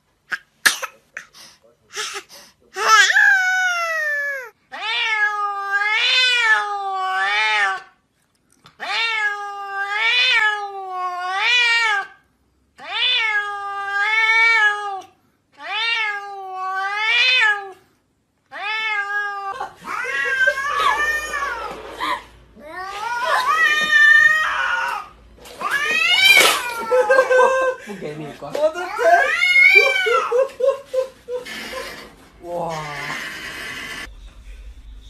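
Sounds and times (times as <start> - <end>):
cat meowing: 2.8 - 7.9, 8.8 - 12.2, 12.8 - 17.8, 18.5 - 21.8, 22.6 - 27.0.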